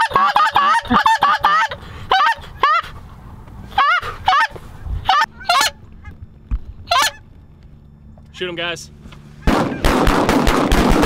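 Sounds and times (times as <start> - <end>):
goose call honks and clucks: 0.0 - 3.0, 3.6 - 6.2, 6.9 - 7.2.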